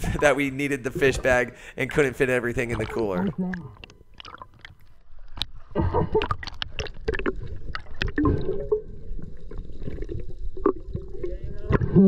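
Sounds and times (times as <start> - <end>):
gurgling water: 0.0 - 12.0
clicks and knocks underwater: 2.6 - 12.0.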